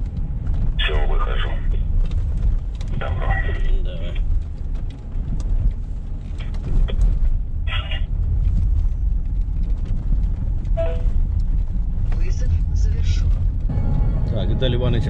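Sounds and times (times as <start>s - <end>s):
car engine and road noise: 0.0s - 15.0s.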